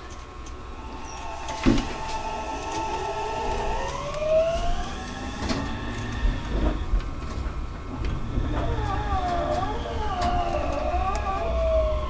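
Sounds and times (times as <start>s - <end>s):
electric train motors whining: 0.0s - 12.0s
low running rumble: 0.3s - 12.0s
wavering tone: 0.7s - 6.7s.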